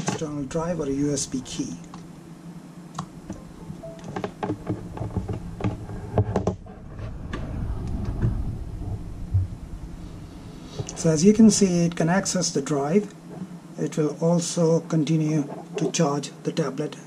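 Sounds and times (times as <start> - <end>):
low rumbling bumps: 0.2 - 2.2, 3.0 - 13.6.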